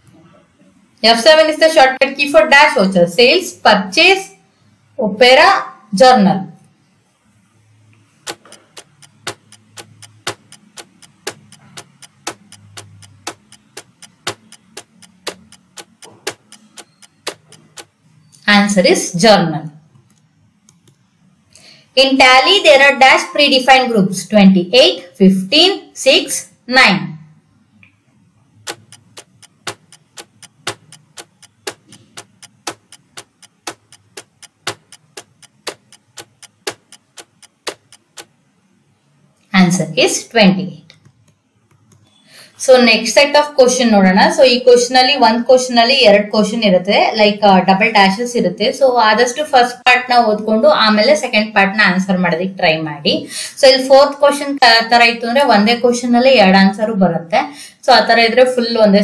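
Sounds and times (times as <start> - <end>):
clock ticking: 8.2 - 18.4, 28.6 - 38.5.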